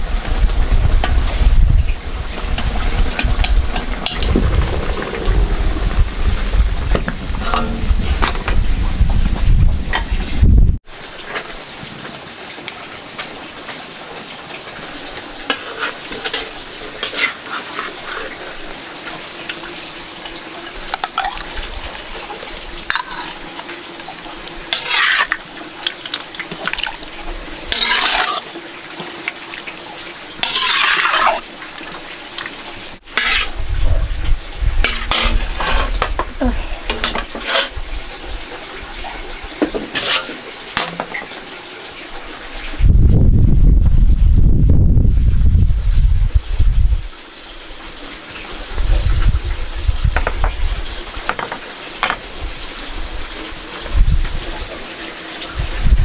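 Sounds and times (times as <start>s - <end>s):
low rumble: 0.6s - 10.8s
metal ladle scraping in a wok: 15.5s - 18.7s, 24.7s - 25.4s, 27.7s - 28.4s, 30.4s - 31.4s, 33.1s - 33.6s, 34.8s - 36.2s, 36.9s - 37.8s, 39.7s - 40.4s
cookware clatter: 22.9s - 23.4s, 34.9s - 37.8s, 39.6s - 41.3s, 51.3s - 52.2s.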